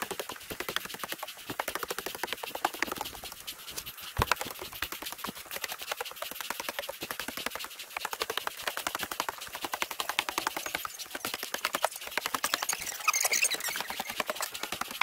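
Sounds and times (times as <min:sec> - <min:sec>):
footsteps on wooden stairs: 0:02.8 - 0:04.8.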